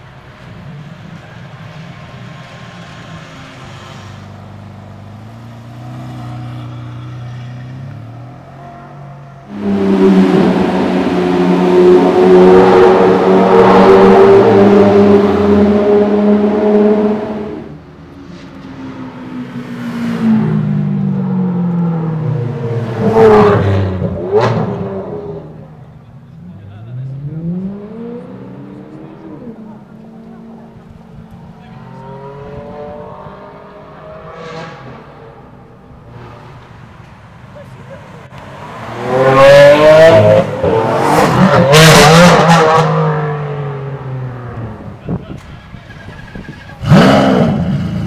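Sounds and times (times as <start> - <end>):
car engine revving past: 2.4 - 8.4, 26.8 - 45.1
sports cars accelerating hard: 9.4 - 48.0.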